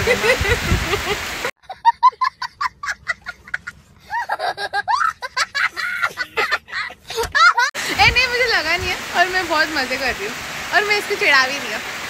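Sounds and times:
young boy laughing: 0.0 - 7.8.

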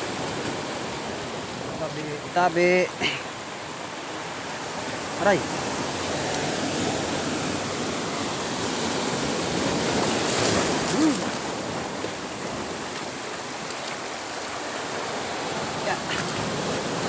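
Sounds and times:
surf breaking on rocks: 4.4 - 17.0.

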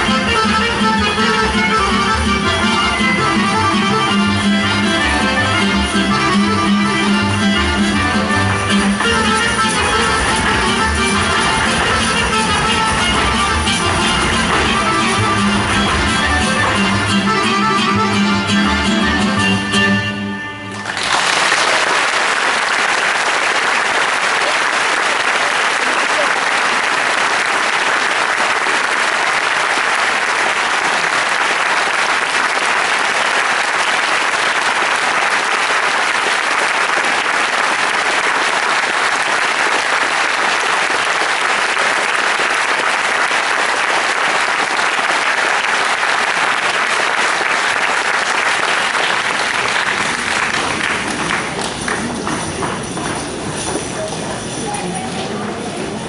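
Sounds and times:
folk music: 0.0 - 21.1, 31.0 - 56.0
audience applauding: 20.7 - 53.7.

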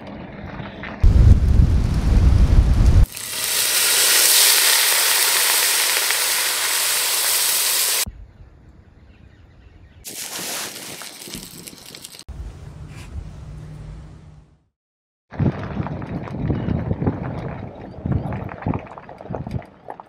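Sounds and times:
campfire crackling: 1.0 - 8.1
wine sizzling in hot pot: 1.5 - 8.1.

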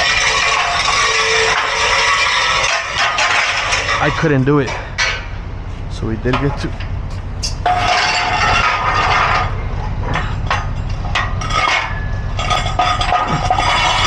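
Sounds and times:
low rumble: 3.0 - 14.0
metallic clinking and rattling: 6.4 - 14.0.

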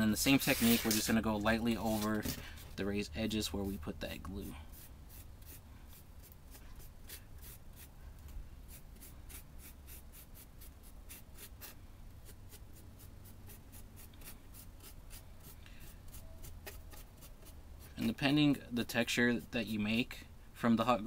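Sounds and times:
paintbrush bristles scratching: 0.2 - 2.3.

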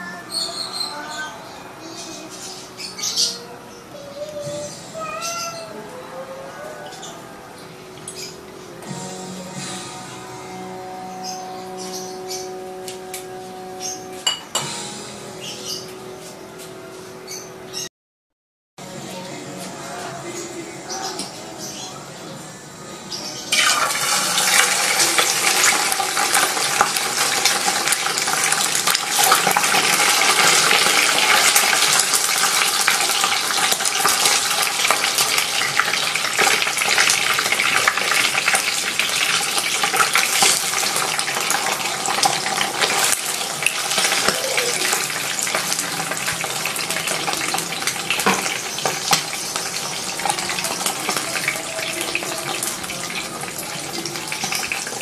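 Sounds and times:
fish sizzling in hot oil: 23.5 - 55.0
oil crackling and spattering: 23.5 - 55.0.

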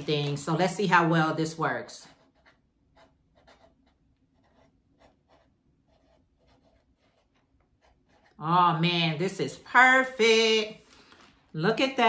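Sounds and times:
marker scratching on label: 1.8 - 8.8.

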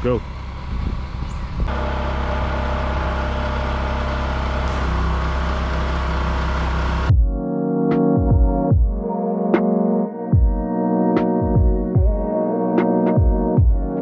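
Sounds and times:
small engine running: 0.0 - 7.1.

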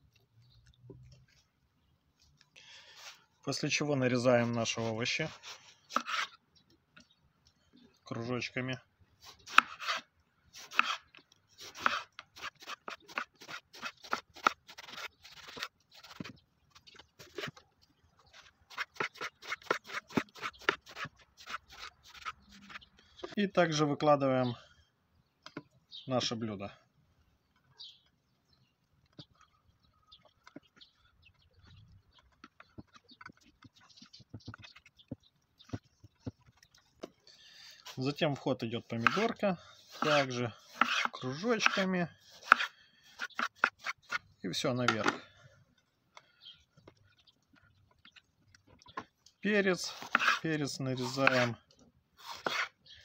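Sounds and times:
knife slicing on wooden board: 9.3 - 11.0, 40.8 - 41.8, 42.4 - 44.2, 49.9 - 50.4, 52.2 - 52.8.

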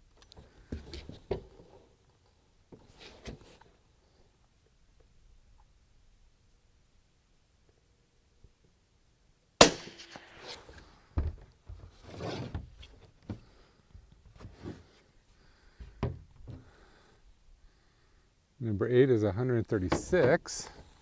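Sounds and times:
rifle shot: 9.6 - 10.7.

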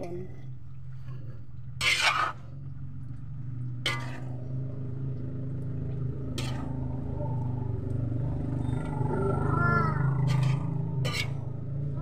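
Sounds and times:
low hum: 0.0 - 12.0
spatula scraping metal wok: 1.8 - 2.5, 3.8 - 4.4, 6.3 - 6.8, 10.1 - 11.6.

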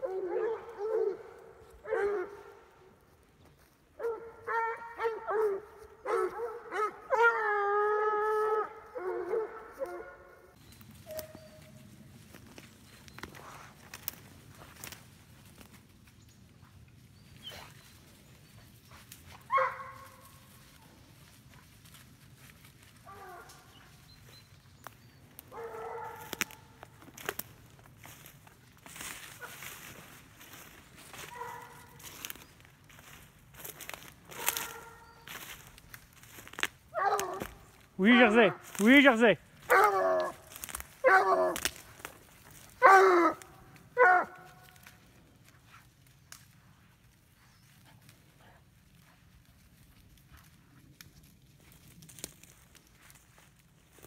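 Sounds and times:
hounds baying: 0.0 - 3.0, 4.0 - 14.9, 17.3 - 21.7, 22.8 - 38.8, 39.6 - 45.0
footsteps through undergrowth: 0.0 - 54.0
twigs snapping: 12.2 - 15.8, 24.8 - 37.9, 38.6 - 38.9, 39.6 - 46.6, 50.2 - 54.0.

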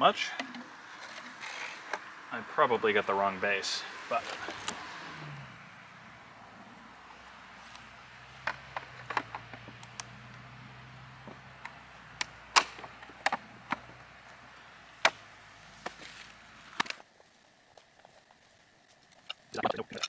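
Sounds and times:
plastic parts clicking and knocking: 0.3 - 2.0, 8.4 - 10.1, 19.2 - 20.0.

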